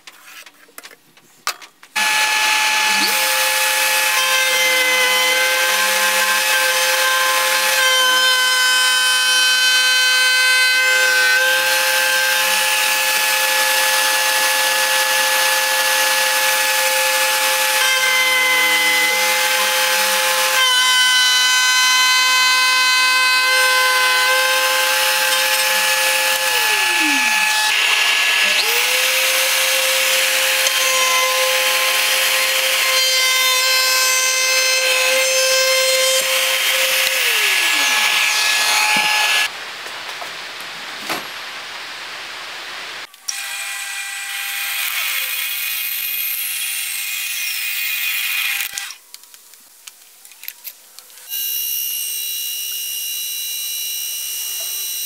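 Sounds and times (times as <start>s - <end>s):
router cutting wood: 2.0s - 39.5s, 43.2s - 49.0s, 51.3s - 55.0s
router motor whine: 2.0s - 39.5s, 51.4s - 55.0s.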